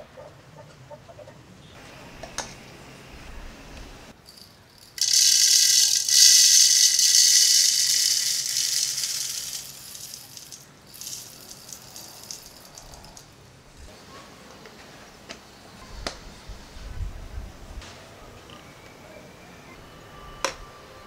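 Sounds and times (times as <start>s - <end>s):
coffee beans pouring and rattling: 4.2s - 13.2s.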